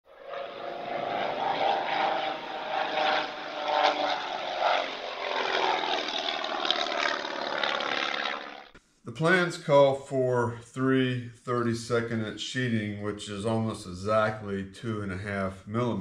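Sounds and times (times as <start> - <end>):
propeller airplane engine: 0.1 - 8.8.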